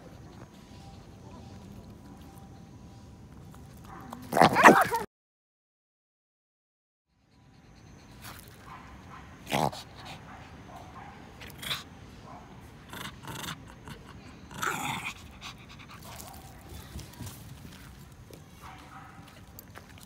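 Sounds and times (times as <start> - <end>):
dog growling: 4.2 - 5.1, 9.4 - 10.1, 12.9 - 15.8.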